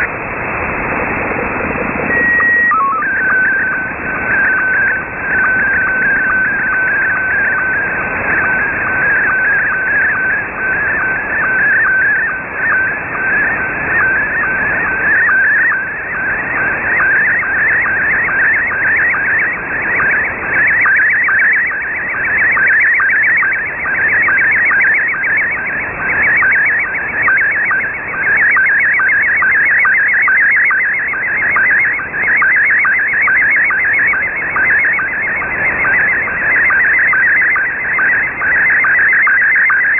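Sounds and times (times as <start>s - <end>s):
radio hiss: 0.0s - 17.0s
warbling chirping signal tone: 1.0s - 39.9s.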